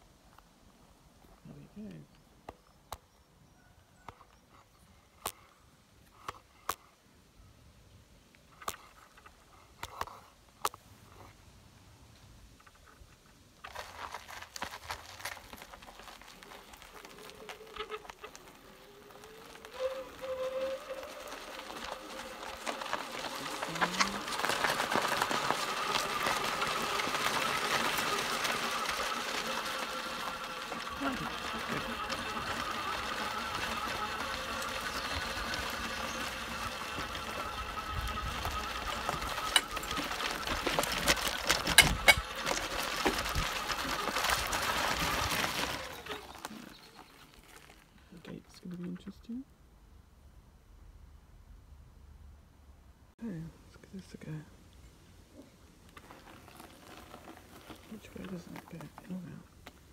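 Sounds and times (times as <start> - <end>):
trike rolling over gravel: 8.3 - 49.3, 53.4 - 59.9
electric motor whining: 16.4 - 46.6.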